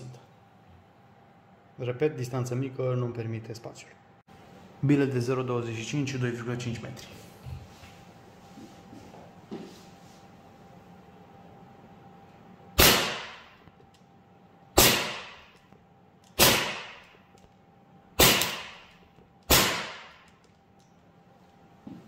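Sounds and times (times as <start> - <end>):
airsoft pistol shots: 12.8 - 13.5, 14.8 - 15.5, 16.4 - 17.1, 18.2 - 20.3.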